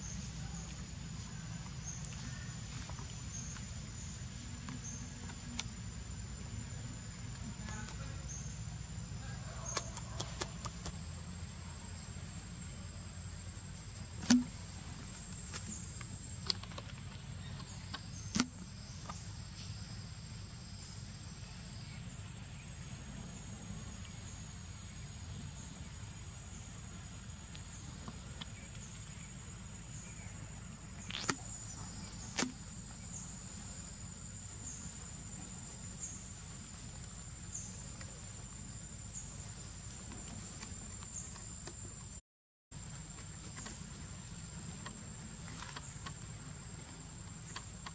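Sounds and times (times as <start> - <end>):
sharp clicks: 9.7 - 11.0.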